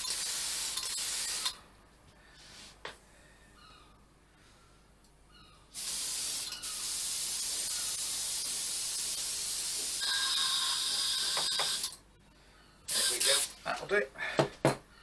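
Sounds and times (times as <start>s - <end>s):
paint spray gun hissing: 0.0s - 1.6s, 5.8s - 11.8s, 12.9s - 13.5s.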